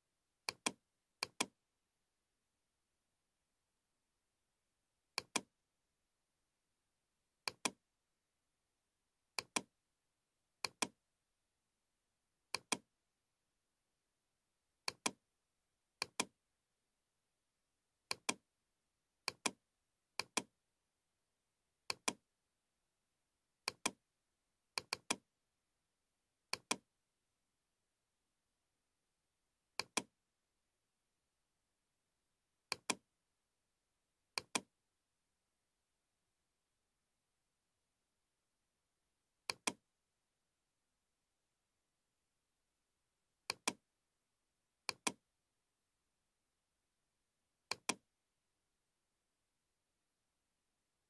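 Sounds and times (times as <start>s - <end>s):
mouse button clicking: 0.5s - 1.5s, 5.2s - 5.5s, 7.5s - 7.8s, 9.4s - 9.7s, 10.6s - 11.0s, 14.9s - 15.2s, 16.0s - 16.3s, 19.3s - 19.6s, 20.2s - 20.5s, 21.9s - 22.2s, 23.7s - 24.0s, 24.8s - 25.2s, 26.5s - 26.8s, 29.8s - 30.1s, 32.7s - 33.0s, 34.4s - 34.7s, 39.5s - 39.8s, 43.5s - 43.8s, 44.9s - 45.2s, 47.7s - 48.0s.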